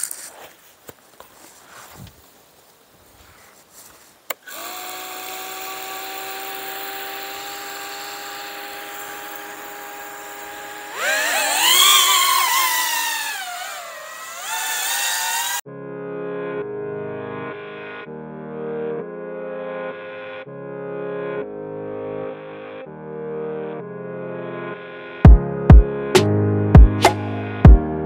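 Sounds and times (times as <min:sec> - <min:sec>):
drone motors whining: 0:04.4 - 0:15.6.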